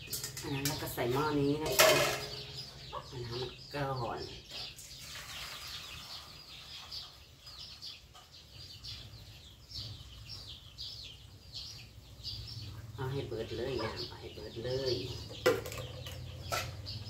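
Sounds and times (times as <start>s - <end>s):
chickens peeping: 0.0s - 17.0s.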